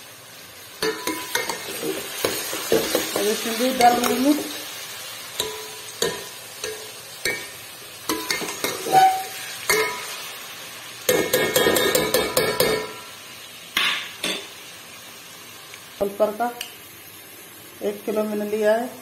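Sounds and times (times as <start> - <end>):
metal spoon scraping a pot: 8.1 - 10.1.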